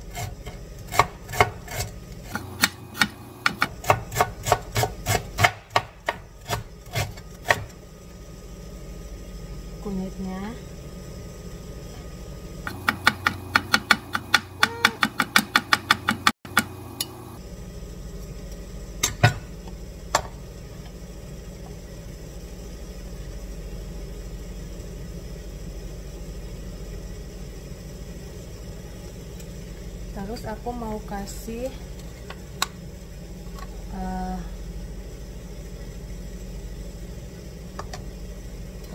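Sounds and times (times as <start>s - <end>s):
low steady background hum: 0.0s - 38.9s
knife chopping on plastic board: 0.9s - 1.8s, 2.6s - 7.7s, 12.7s - 16.6s.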